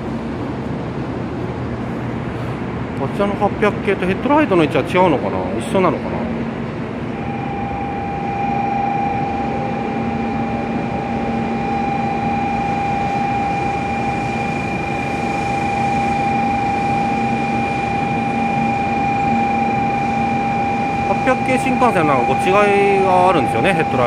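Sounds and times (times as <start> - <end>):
low even hum: 0.0 - 24.0
train electrical whine: 0.0 - 24.0.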